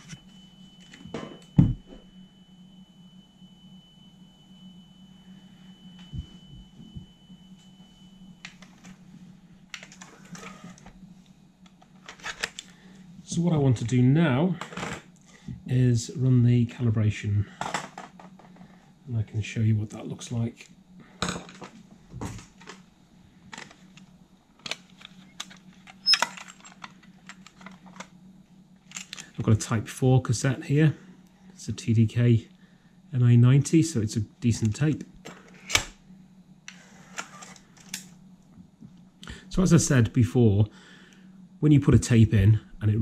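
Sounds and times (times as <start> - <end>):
faint test tone: 0.0 - 9.5.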